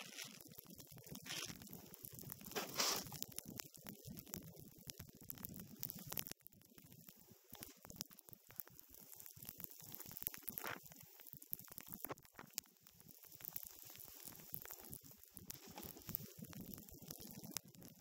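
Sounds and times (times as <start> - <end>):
snowboard scraping over snow: 2.6 - 3.1.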